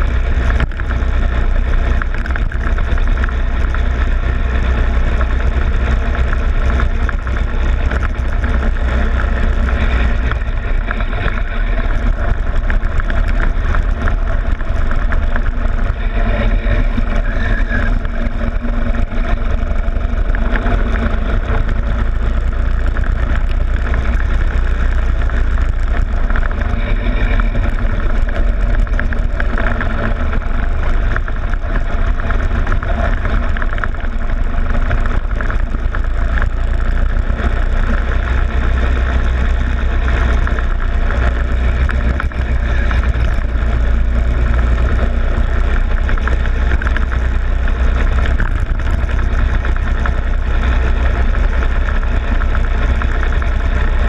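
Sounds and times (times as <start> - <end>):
go-kart engine rumbling: 0.0 - 54.0.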